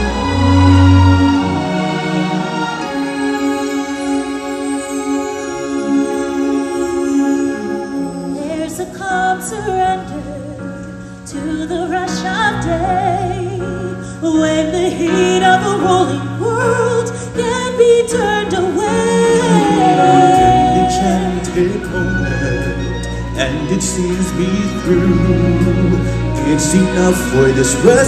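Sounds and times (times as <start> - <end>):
person singing wavering melody: 18.8 - 22.6.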